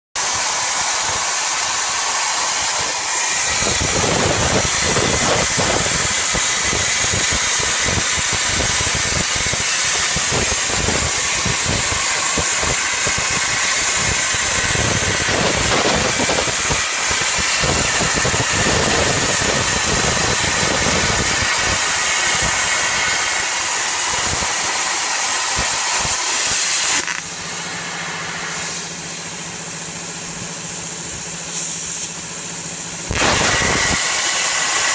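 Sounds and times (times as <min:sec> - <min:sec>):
plasma arc hissing: 0:00.2 - 0:34.9
rough crackle: 0:26.4 - 0:27.3.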